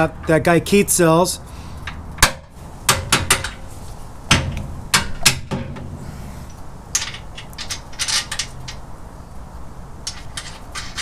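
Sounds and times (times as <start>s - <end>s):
clicks and rattles: 6.9s - 8.8s, 10.0s - 11.0s.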